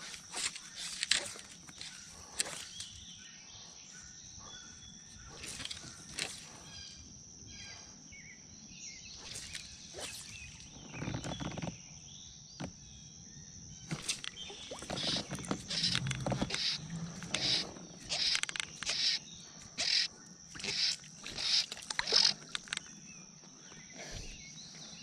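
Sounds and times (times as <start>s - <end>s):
fly line swishing through rod guides: 0.0s - 3.0s, 5.2s - 6.7s, 9.2s - 10.8s, 13.9s - 22.9s
high-pitched insect whine: 0.0s - 25.0s.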